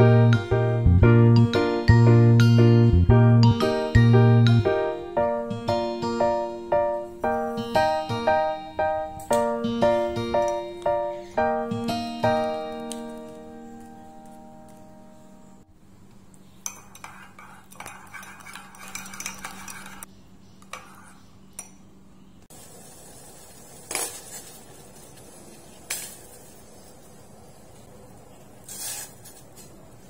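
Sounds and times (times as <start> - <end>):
metal spoon clinking in mug: 16.6 - 20.1
water boiling in pot: 22.5 - 28.6.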